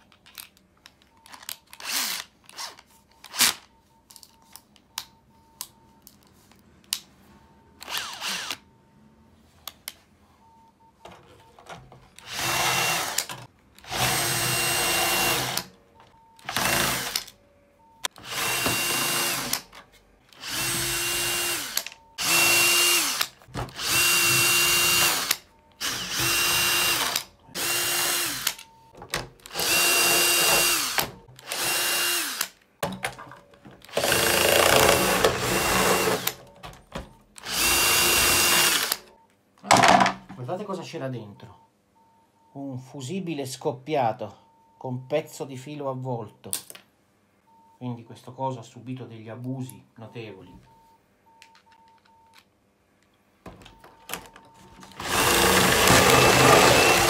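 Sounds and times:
cordless drill whining: 1.8s - 3.5s, 7.8s - 8.6s, 12.2s - 15.7s, 16.4s - 17.2s, 18.2s - 19.6s, 20.3s - 28.6s, 29.4s - 32.5s, 33.9s - 36.4s, 37.4s - 39.0s, 54.9s - 57.0s.

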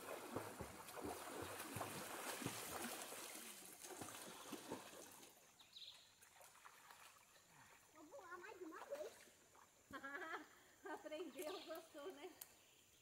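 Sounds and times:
water splashing in pool: 0.0s - 9.9s.

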